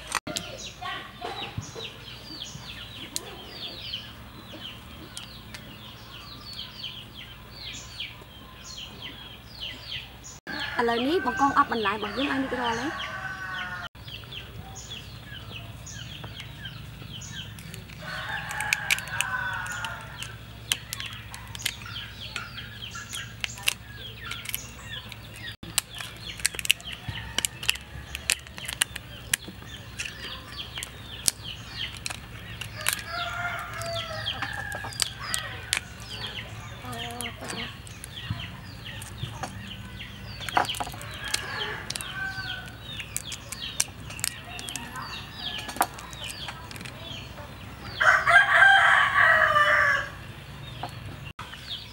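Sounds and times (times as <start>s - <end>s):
chickens clucking: 0.0s - 10.8s, 11.6s - 51.7s
rooster crowing: 10.5s - 13.9s, 18.0s - 20.3s, 32.8s - 36.3s, 41.0s - 42.8s, 48.0s - 50.2s
prawn shells cracking: 17.3s - 47.1s.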